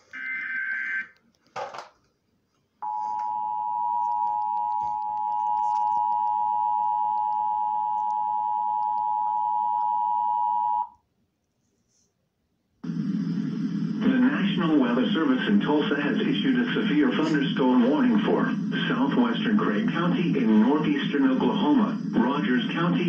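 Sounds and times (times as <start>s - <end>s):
steady dual-tone alert signal: 2.8s - 10.8s.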